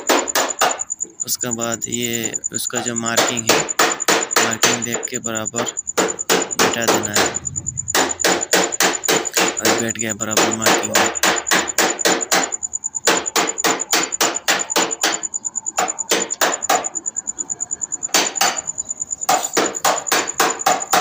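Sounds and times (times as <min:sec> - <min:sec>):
rapid hammer blows: 0:03.2 - 0:15.2.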